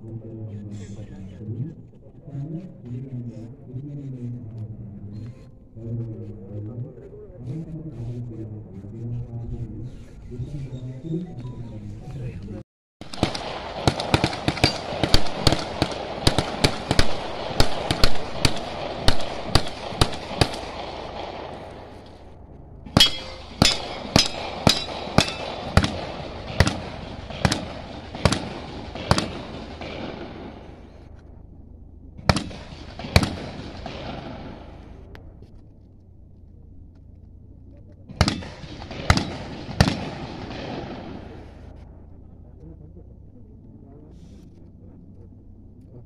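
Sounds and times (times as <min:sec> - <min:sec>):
rifle shots echoing: 0:13.0 - 0:31.4, 0:32.2 - 0:35.4, 0:38.1 - 0:42.2.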